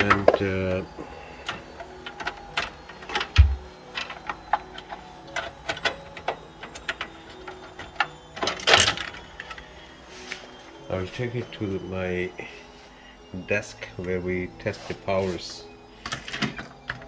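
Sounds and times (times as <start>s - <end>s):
plastic connectors clicking and rattling: 1.4s - 9.7s.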